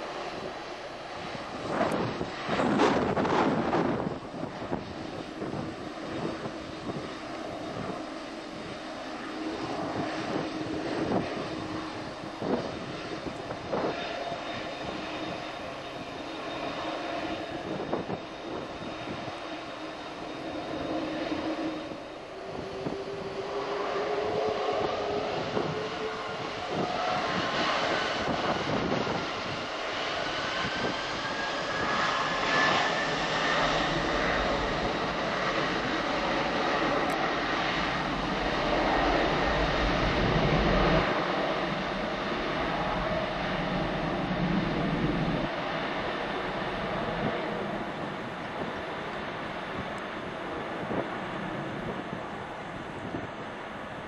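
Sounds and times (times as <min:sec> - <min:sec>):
jet engines running: 0:00.0 - 0:54.0
engine whine rising in pitch: 0:14.3 - 0:29.0.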